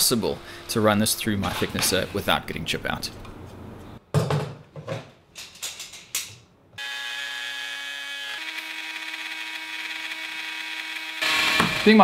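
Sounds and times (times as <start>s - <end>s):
tools clattering on wooden workbench: 4.1s - 6.4s
router whining: 6.8s - 12.0s.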